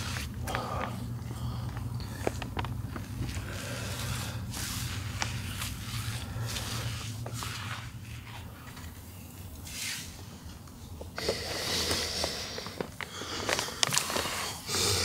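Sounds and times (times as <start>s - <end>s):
low steady hum: 0.0s - 15.0s
plastic sheeting rustling: 2.2s - 10.5s.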